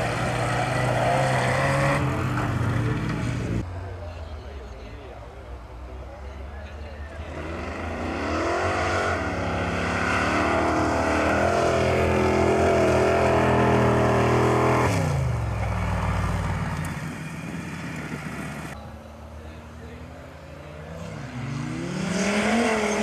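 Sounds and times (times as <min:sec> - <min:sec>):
engine revving at full throttle: 0:00.0 - 0:03.6, 0:07.2 - 0:15.4, 0:20.9 - 0:23.0.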